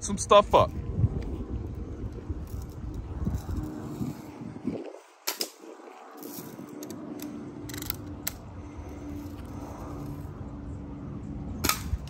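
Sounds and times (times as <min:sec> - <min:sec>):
low rumble: 0:00.7 - 0:05.0
air rifle firing snap: 0:11.6 - 0:12.0.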